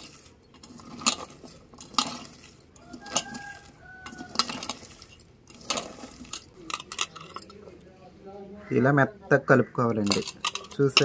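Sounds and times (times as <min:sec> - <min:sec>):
bangles clinking on steel bowl: 0:00.0 - 0:07.8, 0:10.0 - 0:11.0
bangles jingling: 0:00.0 - 0:07.8, 0:10.0 - 0:11.0.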